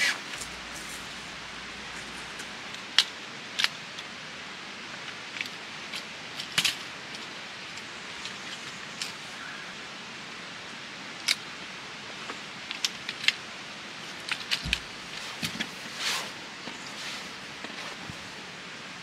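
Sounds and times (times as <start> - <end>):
steady hiss: 0.0 - 19.0
camp cot legs clicking: 14.0 - 16.0.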